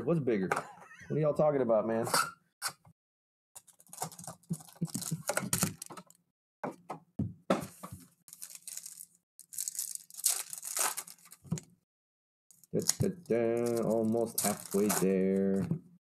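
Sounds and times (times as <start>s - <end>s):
foil wrappers crinkling and tearing: 3.6s - 6.1s, 8.3s - 11.6s, 12.5s - 15.5s.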